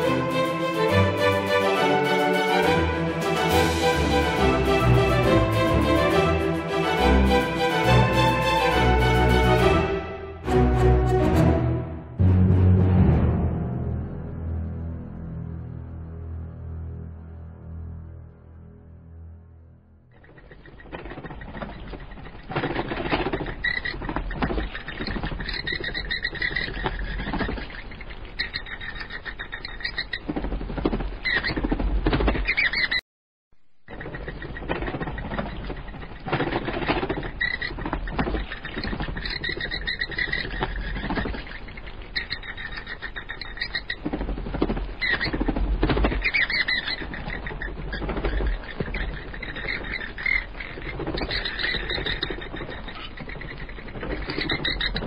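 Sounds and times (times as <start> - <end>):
dense animal calls: 33.9 - 55.0.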